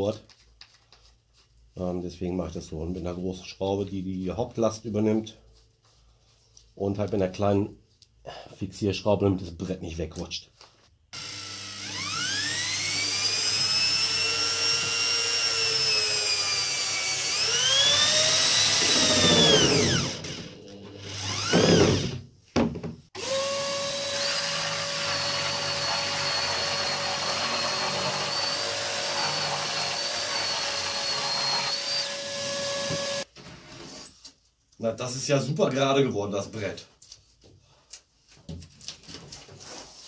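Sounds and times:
electric drill drilling into wood: 11.2 - 22.2, 23.2 - 33.3
jigsaw cutting board: 11.2 - 34.1.

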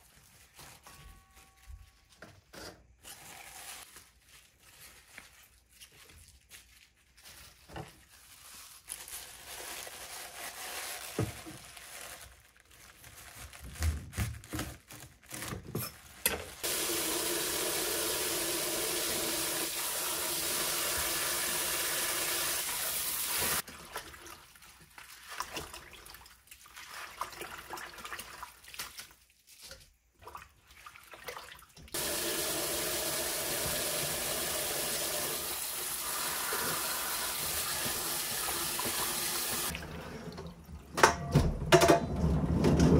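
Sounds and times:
faucet running into steel bowl: 16.6 - 23.6, 31.9 - 39.9.

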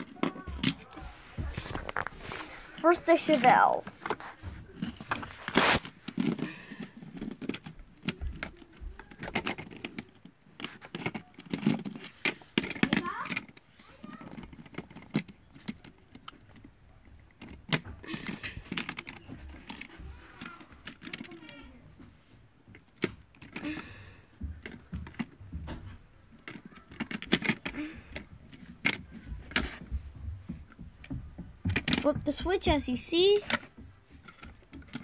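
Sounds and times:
plastic toy parts clicking: 4.8 - 21.8, 24.6 - 29.9, 33.3 - 35.0.

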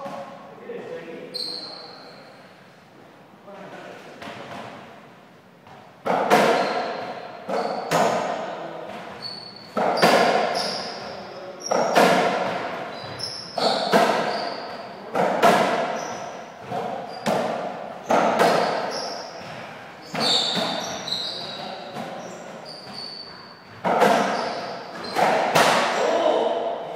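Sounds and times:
short high squeaks: 1.3 - 2.4, 9.1 - 12.0, 12.9 - 14.9, 18.3 - 19.4, 20.0 - 25.4
ball rebounding off wall and floor: 5.6 - 11.0, 11.7 - 26.0
racquet hitting ball: 5.6 - 26.9.

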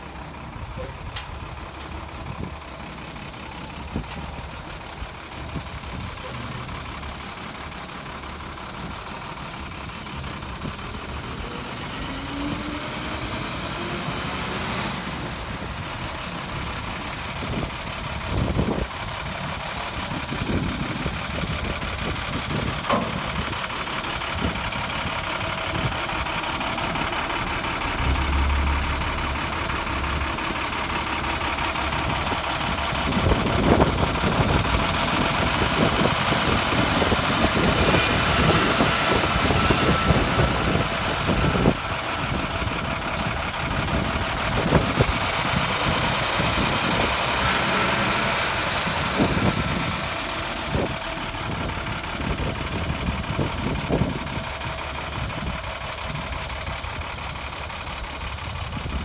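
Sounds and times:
truck diesel engine running: 0.0 - 59.0
short clunks: 22.5 - 24.5.

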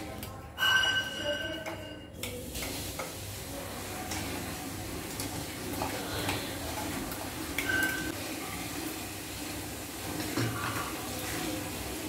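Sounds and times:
steel utensils clinking: 0.5 - 3.0, 7.6 - 8.2
food sizzling in a pan: 2.3 - 12.0.

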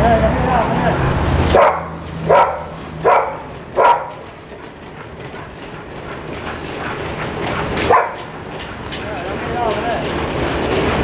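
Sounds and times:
dog treadmill rumbling: 0.0 - 11.0
dog barking: 1.5 - 4.3, 7.8 - 8.3.

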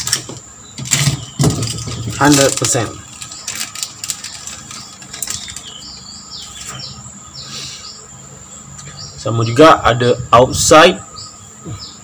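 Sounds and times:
birds chirping: 0.0 - 12.0
plastic packet crinkling and tearing: 1.6 - 5.8.

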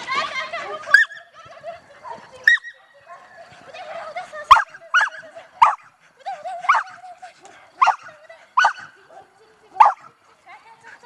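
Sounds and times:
dog barking: 4.5 - 5.9, 6.6 - 7.0, 7.8 - 9.0, 9.8 - 10.1.

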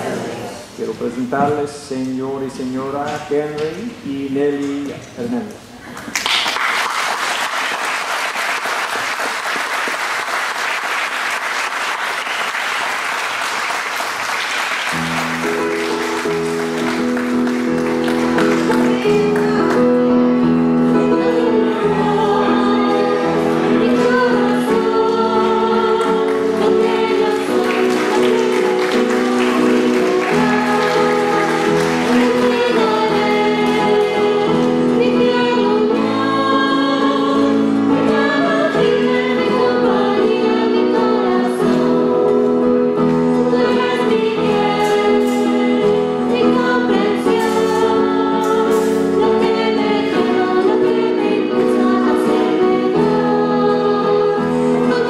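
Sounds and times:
congregation applauding: 5.9 - 19.8, 25.5 - 34.6
held chords: 14.4 - 55.0
person singing: 18.2 - 55.0.

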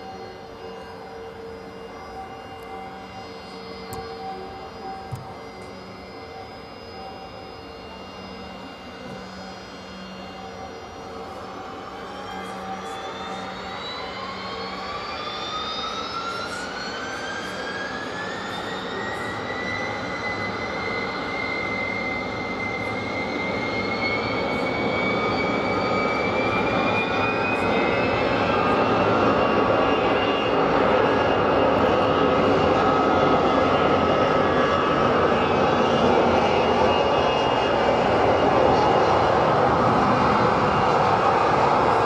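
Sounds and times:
jet engines spooling up: 0.0 - 42.0
jet roar: 22.2 - 42.0.

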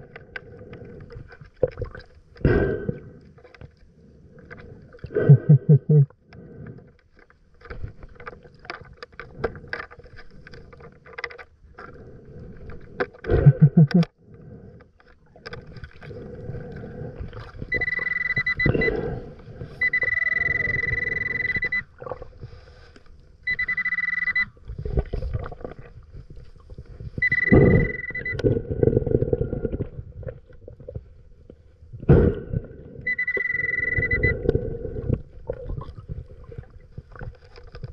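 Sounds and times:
underwater breath bubbling: 0.0 - 6.9, 11.8 - 23.6, 24.7 - 31.2, 31.9 - 37.5
metal detector high beep: 17.7 - 19.2, 19.8 - 21.9, 23.5 - 24.6, 27.2 - 28.5, 33.0 - 34.5.

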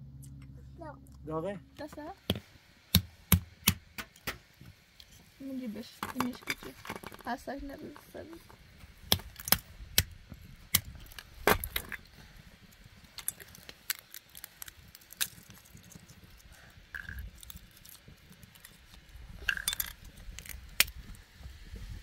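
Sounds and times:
walnut shells cracking: 6.0 - 7.3, 7.9 - 12.1, 12.7 - 21.0
shell pieces clicking into metal bowl: 19.5 - 20.6.

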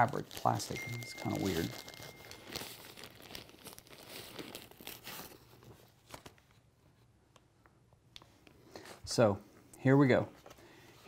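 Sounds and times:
plastic wrapping crinkling: 0.0 - 7.0.

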